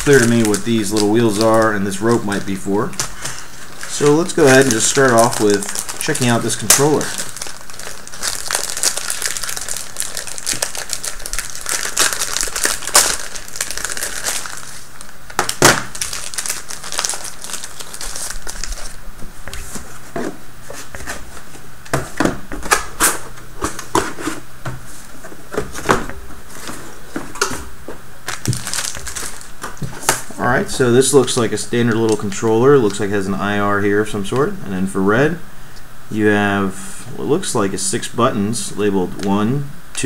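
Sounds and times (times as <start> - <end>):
plastic bag crinkling: 0.0 - 20.0, 28.2 - 33.2.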